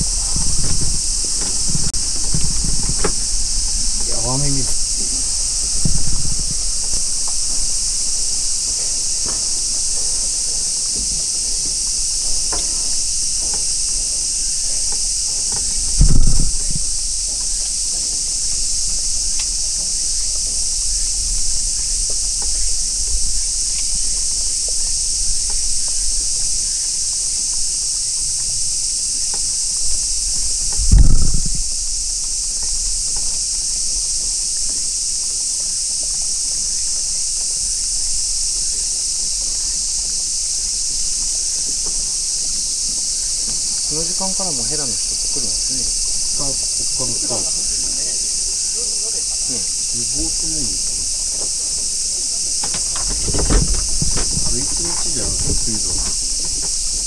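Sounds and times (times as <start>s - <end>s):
dull low thump: 0.0s - 14.1s, 14.8s - 17.8s, 30.5s - 31.9s, 52.6s - 57.0s
cicadas chorus: 0.0s - 57.0s.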